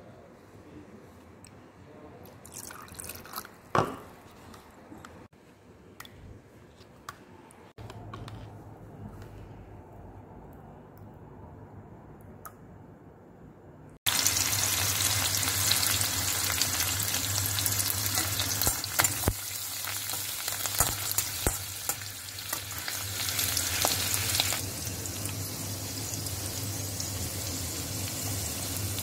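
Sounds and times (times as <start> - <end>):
seeds and leaves sizzling in ghee: 14.1 - 29.0.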